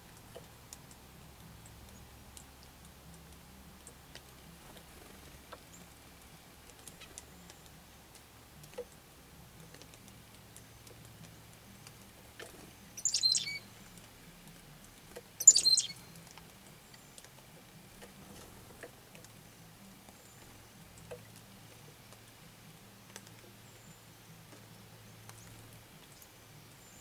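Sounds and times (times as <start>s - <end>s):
faint ticks: 0.0s - 27.0s
chickadee calling: 13.0s - 13.7s, 15.4s - 16.1s.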